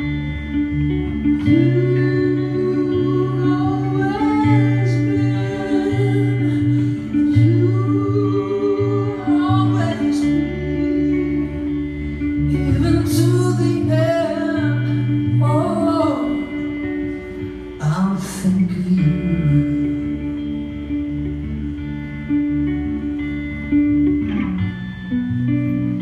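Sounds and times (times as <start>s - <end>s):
guitar: 0.0s - 26.0s
man singing into a microphone: 12.5s - 16.6s, 17.8s - 20.2s.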